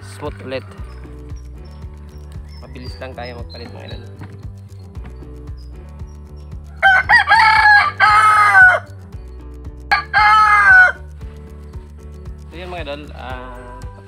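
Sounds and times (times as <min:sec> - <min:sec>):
rooster crowing: 0:06.8 - 0:08.9, 0:09.9 - 0:11.1.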